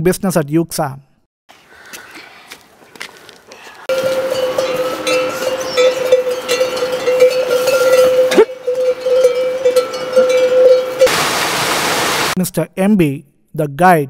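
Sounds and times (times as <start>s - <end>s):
pack animal bells ringing: 3.9s - 11.1s.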